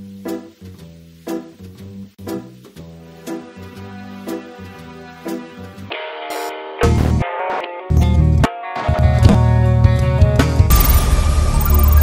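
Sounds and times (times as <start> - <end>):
electronic music chords: 10.7 - 12.0.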